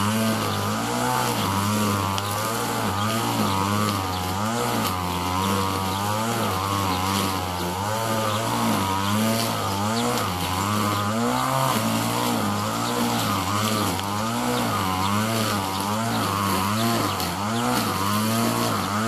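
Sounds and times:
grass trimmer engine running: 0:00.0 - 0:19.0.

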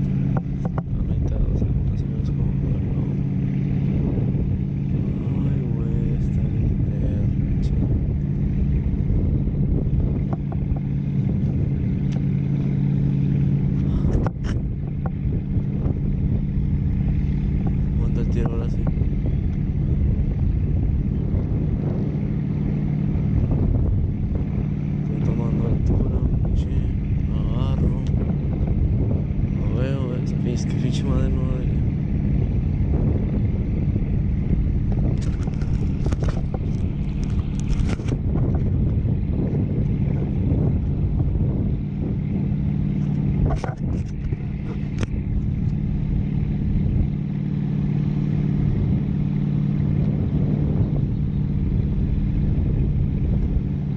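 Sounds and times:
motorboat engine drone: 0:00.0 - 0:53.9
wind buffeting microphone: 0:00.0 - 0:53.9
finger handling camera: 0:35.1 - 0:38.2, 0:43.0 - 0:45.8.

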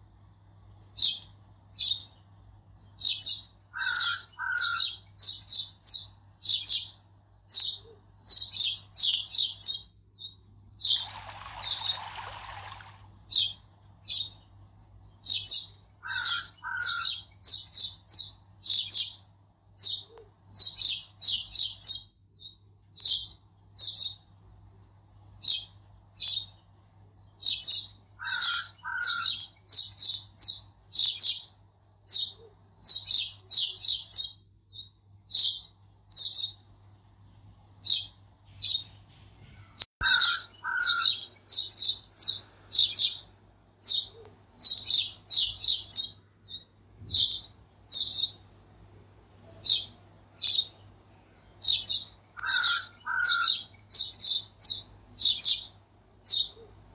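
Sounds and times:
small birds chirping: 0:00.0 - 0:56.9.

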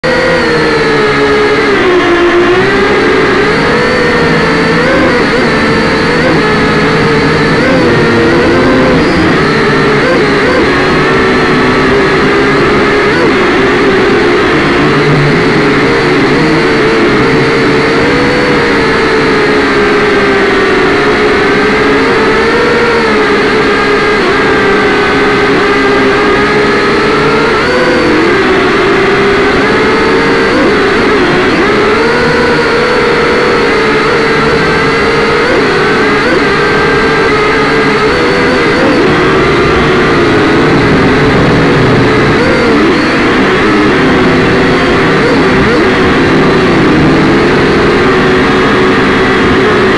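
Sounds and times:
quadcopter motors whining: 0:00.0 - 0:49.9.

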